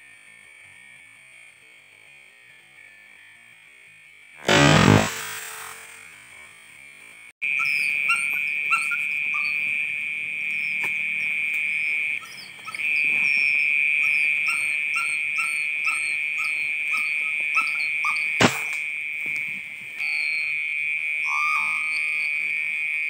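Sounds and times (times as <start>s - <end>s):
insects droning: 4.2s - 23.0s
sharp crack: 4.5s - 6.0s, 18.4s - 18.8s.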